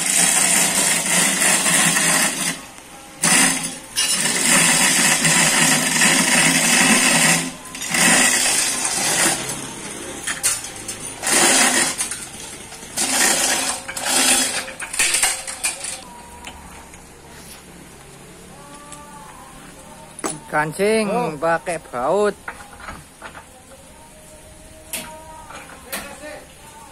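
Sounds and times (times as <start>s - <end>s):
steel chain rattling through hoist: 3.2s - 12.3s, 13.0s - 16.0s.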